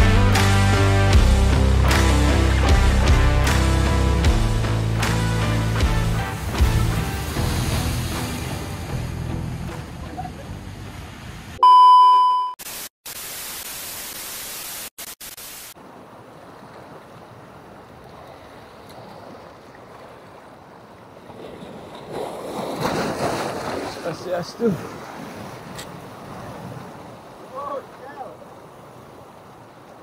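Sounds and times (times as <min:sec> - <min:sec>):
wind: 0:00.0 - 0:11.8, 0:15.3 - 0:30.0
surf on rocky shore: 0:05.0 - 0:11.6, 0:15.4 - 0:30.0
loud steady beep: 0:11.6 - 0:12.6
hissing static: 0:12.6 - 0:15.8.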